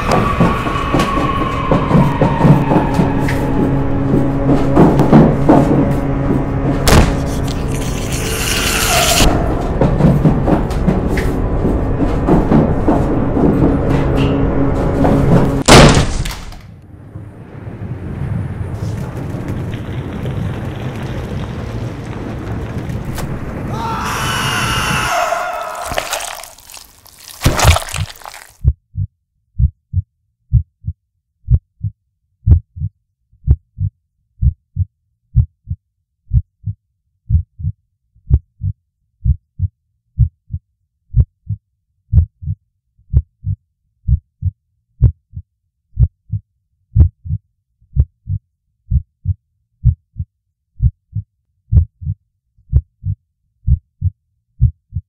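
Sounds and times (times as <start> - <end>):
heartbeat thumps: 28.6 - 45.4, 46.0 - 46.4, 47.0 - 47.4, 48.0 - 55.0.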